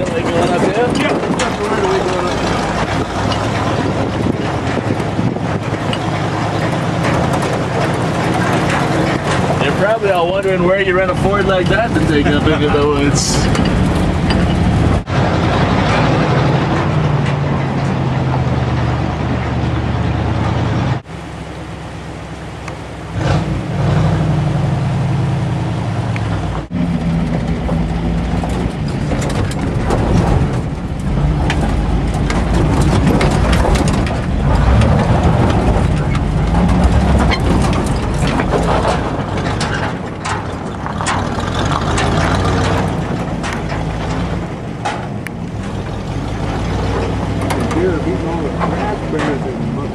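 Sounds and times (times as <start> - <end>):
cab rattles and gravel clicks: 0.0 - 15.0, 26.3 - 49.9
truck engine hum: 0.0 - 49.9.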